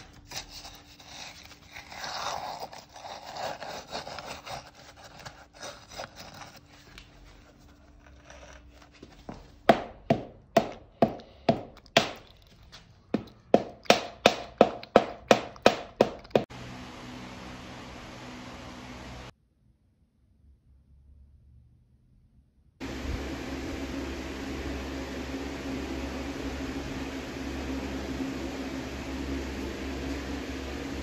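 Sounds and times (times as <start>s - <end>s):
knocking on steel tube: 9.7s - 12.2s, 13.2s - 16.4s.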